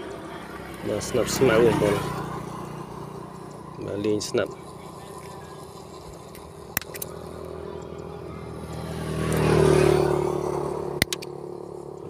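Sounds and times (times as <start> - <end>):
passing vehicle engine: 0.0 - 12.0
sharp clicks: 6.3 - 7.1.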